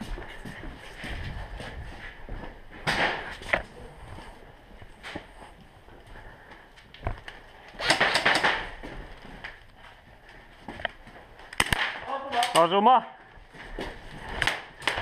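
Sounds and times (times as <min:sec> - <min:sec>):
airsoft pistol cracks: 0:11.6 - 0:12.0.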